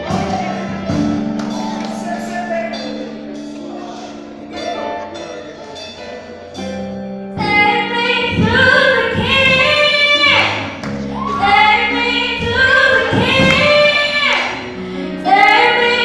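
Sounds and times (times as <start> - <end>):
keyboard chords: 0.0 - 16.0
girl singing gospel song: 7.4 - 16.0.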